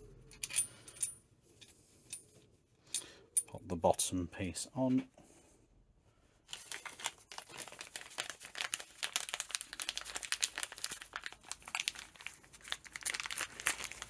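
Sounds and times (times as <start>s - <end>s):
plastic bag crinkling: 6.5s - 14.0s.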